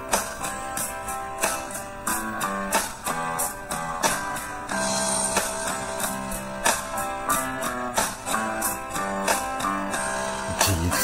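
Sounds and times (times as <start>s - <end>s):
guitar strumming chords: 0.0s - 11.0s.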